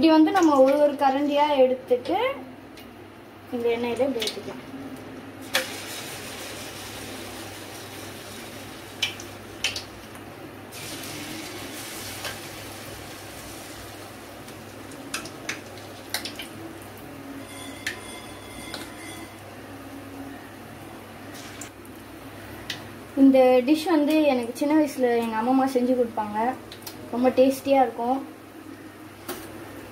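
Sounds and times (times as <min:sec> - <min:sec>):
batter sizzling in hot oil: 0:05.4 - 0:19.4
metal spoon clinking on pan: 0:17.5 - 0:19.4.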